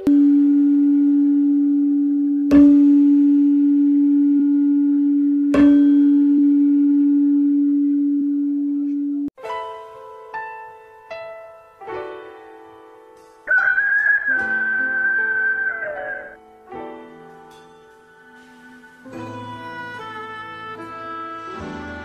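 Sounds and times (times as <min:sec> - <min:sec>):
low bell-like chime: 0:00.1 - 0:09.2.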